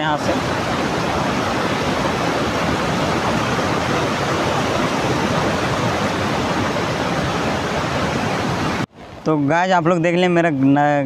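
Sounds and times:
river water rushing over rocks: 0.0 - 9.2.

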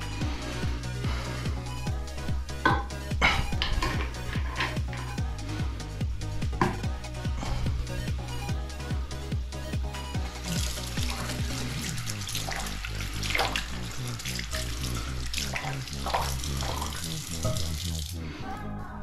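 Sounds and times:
water running: 0.0 - 5.4, 6.1 - 8.7, 9.9 - 18.2
music with steady beat: 0.0 - 17.9.

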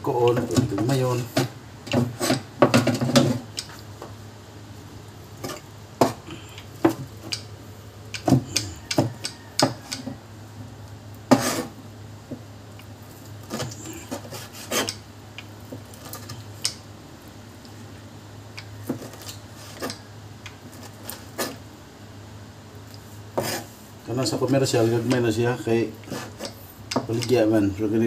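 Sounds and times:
knife chopping on cutting board: 23.4 - 23.6.

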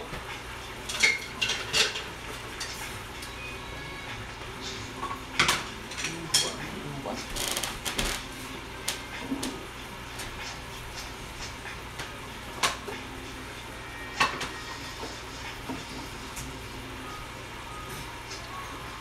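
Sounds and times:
pans and utensils clinking: 0.1 - 8.3, 13.9 - 16.4.

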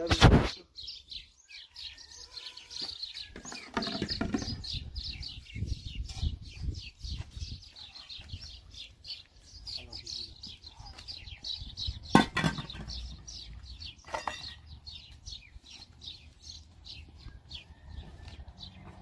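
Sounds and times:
small birds chirping: 0.0 - 19.0
dishes clattering: 12.2 - 12.9, 14.0 - 14.6.

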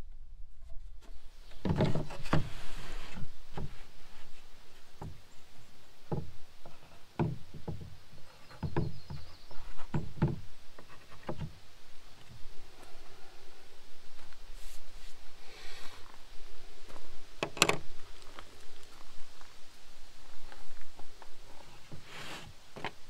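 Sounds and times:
wooden boards knocking: 1.6 - 2.4, 6.1 - 10.4.

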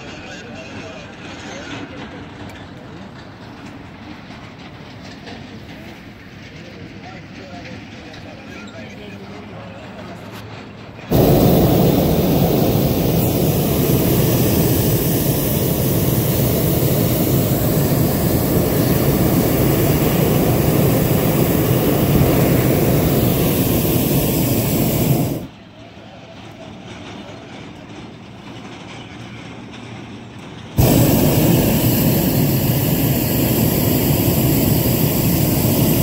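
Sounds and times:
faint hiss: 11.1 - 25.5, 30.8 - 36.0
propane burner blast: 11.1 - 25.5, 30.8 - 36.0.

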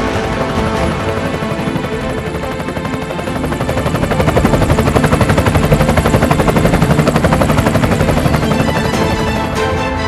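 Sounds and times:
helicopter rotor beating: 0.0 - 10.0.

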